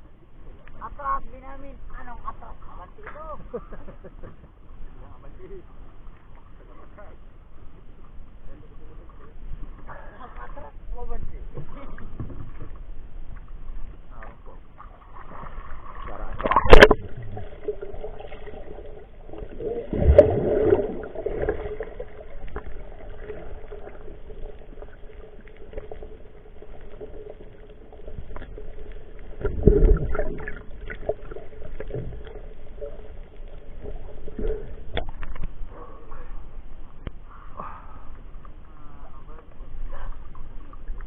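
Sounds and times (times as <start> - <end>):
underwater low hum: 0.0 - 41.0
water gurgling: 8.8 - 41.0.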